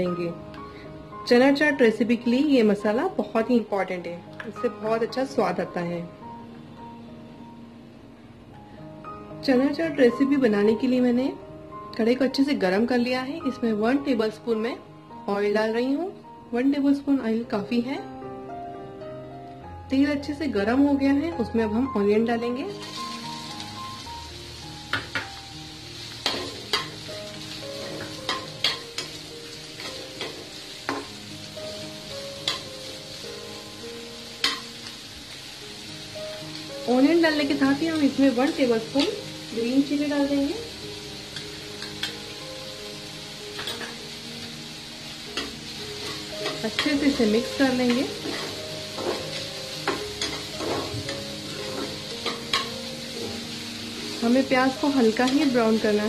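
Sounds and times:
onions sizzling in hot oil: 0:00.0 - 0:06.0, 0:09.4 - 0:18.0, 0:19.9 - 0:56.0
soft background music: 0:00.0 - 0:56.0
spatula scraping a pan: 0:26.2 - 0:27.0, 0:45.4 - 0:54.2.

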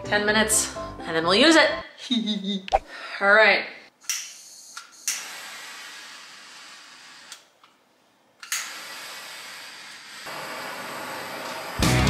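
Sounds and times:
torch flame hissing: 0:05.0 - 0:07.5, 0:08.6 - 0:11.8.

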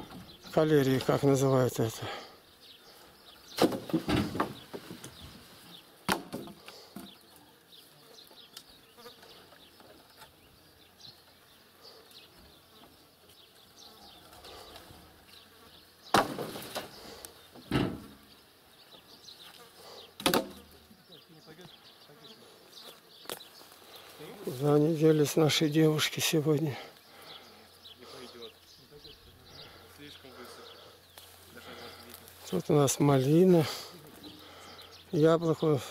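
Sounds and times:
sharp knocks and thumps: 0:03.6 - 0:05.2, 0:06.1 - 0:07.2, 0:16.1 - 0:16.9, 0:17.6 - 0:18.3, 0:20.2 - 0:20.8
faint insect buzz: 0:05.6 - 0:24.9, 0:26.7 - 0:35.2.

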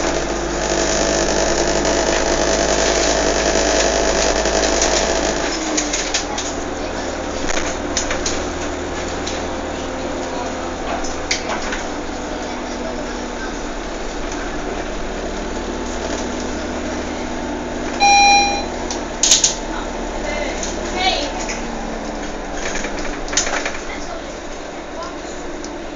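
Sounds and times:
loud beep: 0:18.0 - 0:18.8.

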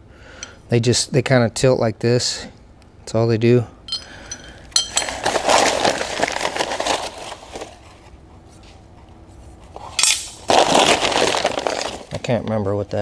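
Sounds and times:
packing paper crackling: 0:05.1 - 0:08.0, 0:10.4 - 0:12.2.

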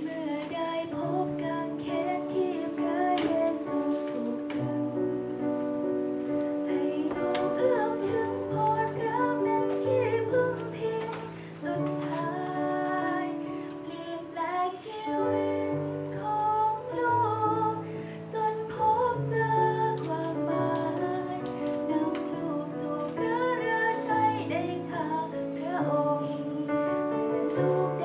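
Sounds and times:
woman singing into microphone: 0:00.0 - 0:05.4, 0:06.7 - 0:28.0
instrumental accompaniment: 0:00.0 - 0:28.0.

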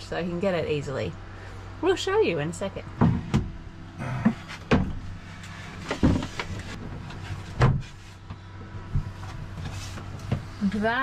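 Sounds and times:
steady low hum: 0:00.0 - 0:11.0
wooden panels knocking and thumping: 0:04.3 - 0:05.0, 0:05.8 - 0:07.9.

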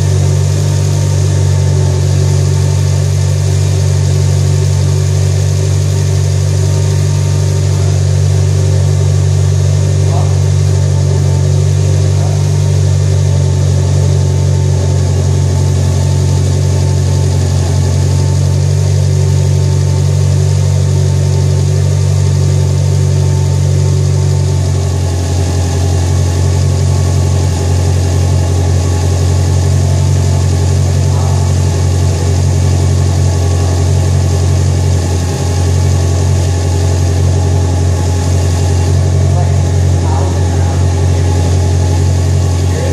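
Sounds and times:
car engine idling: 0:00.0 - 0:42.9.

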